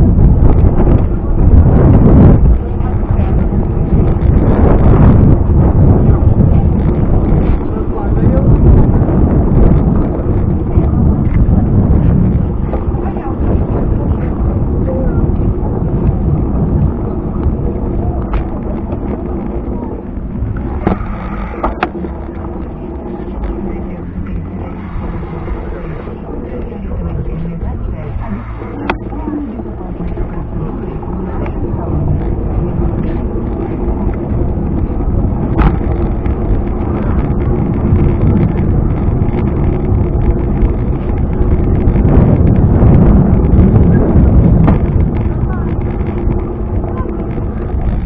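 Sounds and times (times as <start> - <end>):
bicycle rolling on tile path: 0.0 - 48.0
wind buffeting microphone: 0.0 - 48.0.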